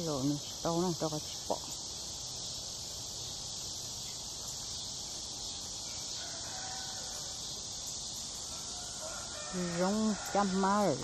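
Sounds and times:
high-pitched insect drone: 0:00.0 - 0:11.0
distant rooster crowing: 0:05.8 - 0:07.6, 0:08.4 - 0:11.0.

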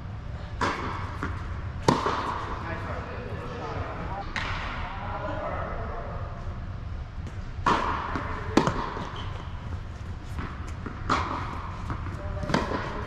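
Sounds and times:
steady low hum: 0:00.0 - 0:13.0
tennis ball struck by rackets: 0:00.6 - 0:02.6, 0:04.3 - 0:04.8, 0:07.3 - 0:13.0
ball bouncing on hard court: 0:00.6 - 0:03.6, 0:07.2 - 0:13.0.

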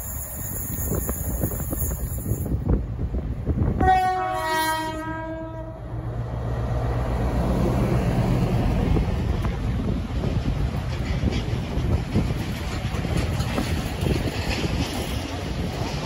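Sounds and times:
two-tone locomotive horn: 0:03.8 - 0:06.0.

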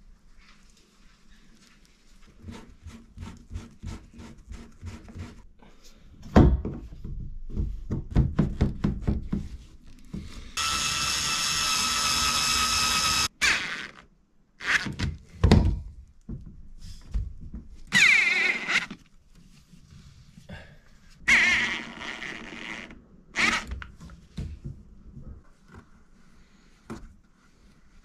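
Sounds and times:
cordless screwdriver running: 0:10.6 - 0:14.0, 0:17.9 - 0:18.9, 0:21.3 - 0:23.7.

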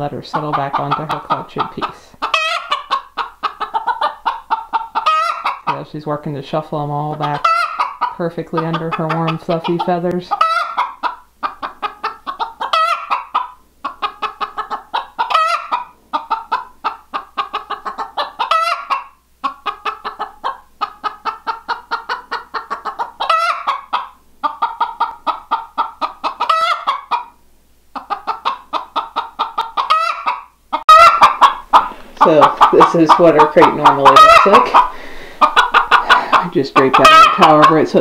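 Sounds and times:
hen clucking rapidly: 0:00.0 - 0:38.0.

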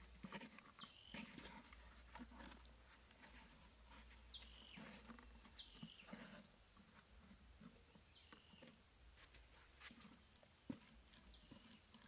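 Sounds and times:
cardboard scraping on sandy soil: 0:00.0 - 0:07.1.

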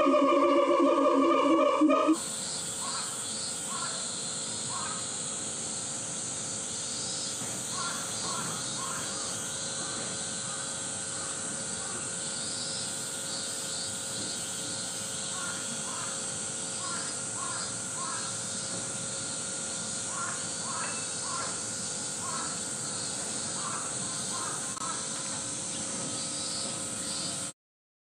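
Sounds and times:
steady high hiss: 0:00.0 - 0:27.5.

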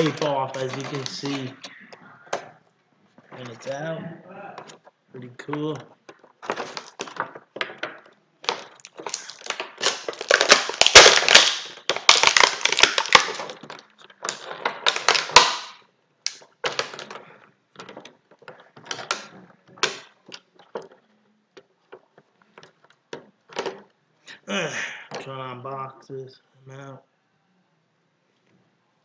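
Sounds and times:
packaging snapping: 0:00.0 - 0:01.7, 0:05.6 - 0:17.2, 0:17.8 - 0:21.0
plastic packaging crackling: 0:00.0 - 0:01.7, 0:04.6 - 0:21.0.

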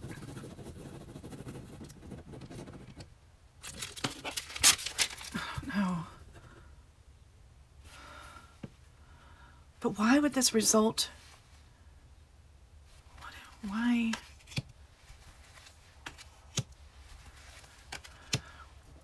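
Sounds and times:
pen scribbling on notepad: 0:00.0 - 0:03.0
paper tearing: 0:03.6 - 0:05.4.

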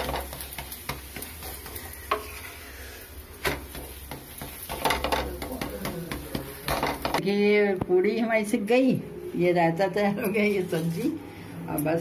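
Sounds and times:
bread sizzling in oil: 0:00.0 - 0:07.2
wooden spatula scraping pan: 0:00.0 - 0:07.2.

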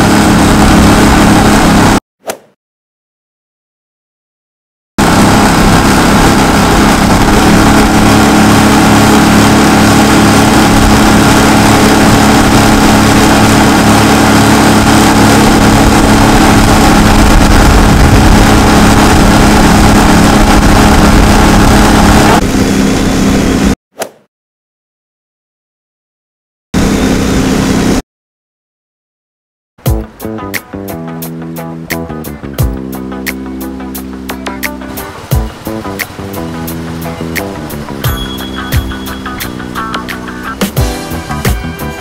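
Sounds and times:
boat motor at full throttle: 0:00.0 - 0:02.0, 0:05.0 - 0:23.7, 0:26.8 - 0:28.0, 0:32.6 - 0:42.0
rush of wind and spray: 0:05.0 - 0:23.7, 0:35.0 - 0:38.1.

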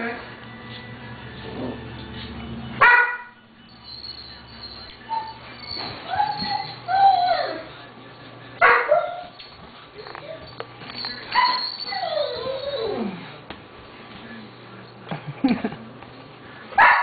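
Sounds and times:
puppies whining and yipping: 0:03.8 - 0:07.8, 0:08.9 - 0:13.2
puppy yelps: 0:06.1 - 0:07.6, 0:11.4 - 0:13.0.

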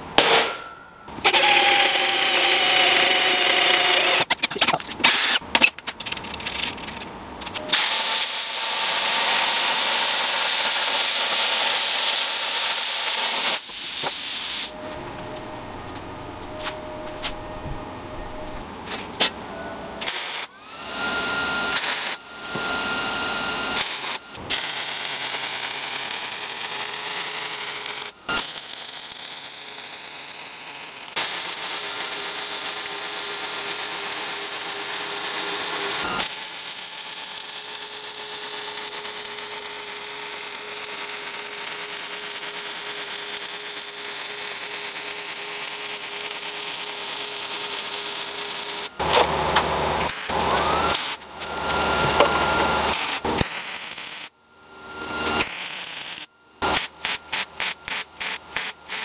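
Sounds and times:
power tool motor whine: 0:01.2 - 0:05.4, 0:20.0 - 0:59.0
loud hissing noise: 0:07.7 - 0:14.8.

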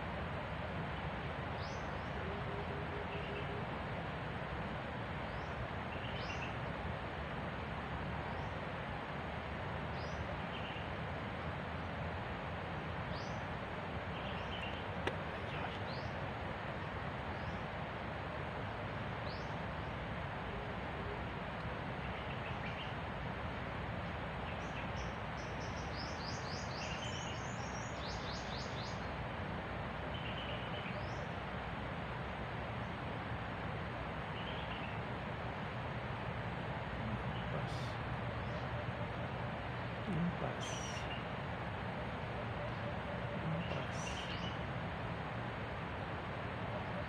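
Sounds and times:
steady hiss: 0:00.0 - 0:47.0
small birds chirping: 0:13.0 - 0:16.2, 0:39.8 - 0:41.4, 0:43.4 - 0:44.7.

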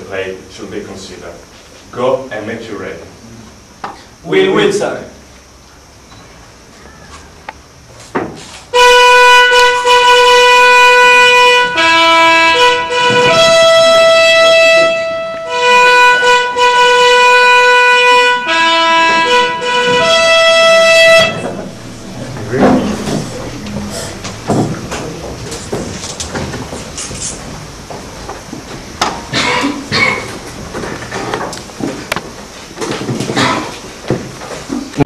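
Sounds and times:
horn fanfare: 0:19.3 - 0:26.9
quiet stage noise: 0:20.4 - 0:27.7.

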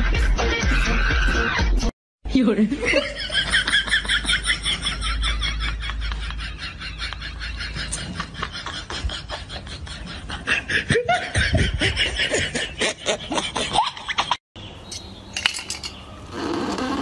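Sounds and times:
person laughing: 0:02.8 - 0:14.4.

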